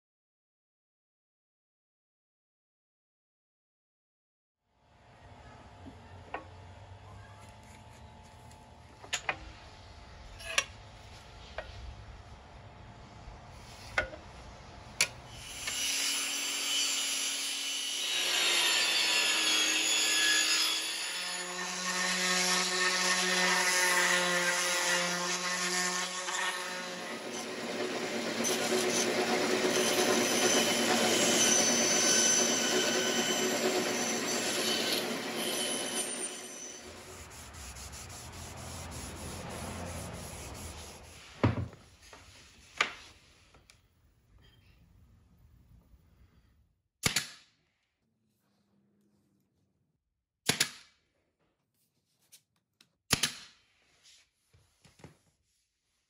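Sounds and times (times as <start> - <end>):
electric sander on wood: 21.4 - 41.2.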